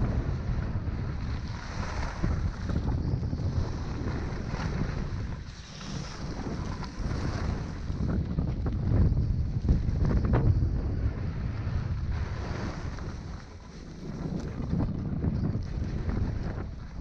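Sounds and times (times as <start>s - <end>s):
wind buffeting microphone: 0.0s - 17.0s
skis sliding over snow: 3.4s - 10.5s, 11.2s - 17.0s.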